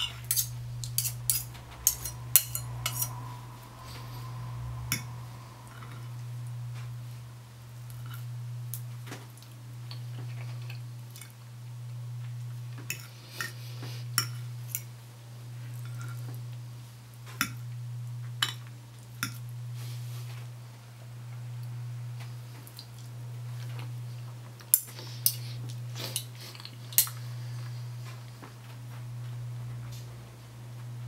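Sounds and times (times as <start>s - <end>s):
cutlery clinking on a plate: 0.0s - 3.1s
steady low hum: 0.0s - 31.0s.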